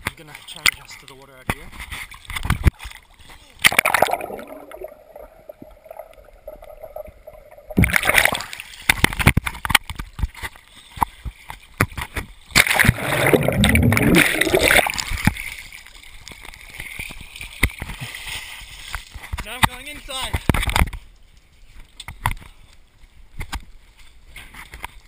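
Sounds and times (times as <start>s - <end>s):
muffled underwater water noise: 0.0s - 25.0s
water splashing around swimmer: 1.9s - 9.4s, 11.1s - 19.4s.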